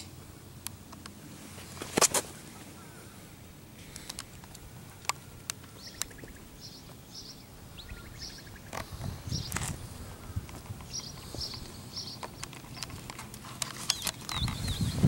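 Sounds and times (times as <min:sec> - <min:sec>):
small birds chirping: 0:02.4 - 0:15.0
sharp clicks: 0:03.9 - 0:06.4, 0:10.4 - 0:14.9.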